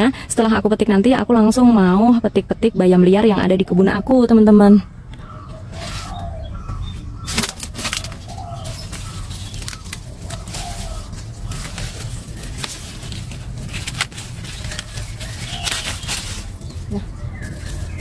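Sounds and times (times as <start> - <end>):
steady low rumble: 0.0 - 18.0
dove cooing: 5.2 - 18.0.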